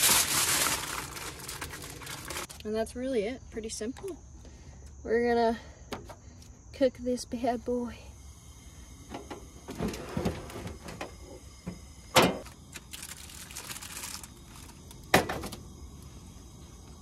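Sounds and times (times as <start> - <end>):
aluminium foil crinkling: 0.0 - 2.8, 12.4 - 15.1.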